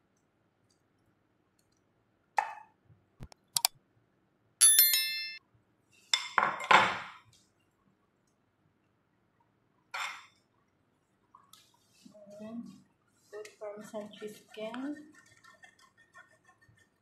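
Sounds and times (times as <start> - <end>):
sharp clicks: 3.2 - 3.8
bright bell chime: 4.6 - 5.4.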